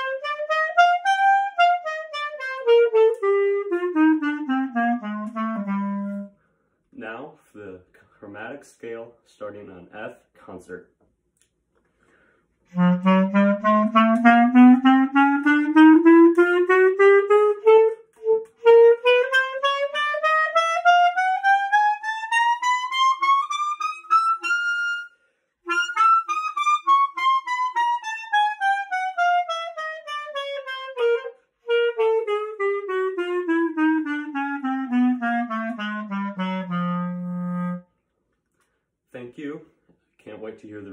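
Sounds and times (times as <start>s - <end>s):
clarinet playing a scale: 0.0s - 6.4s, 12.7s - 38.0s
short breaths: 11.8s - 12.7s, 25.1s - 25.6s.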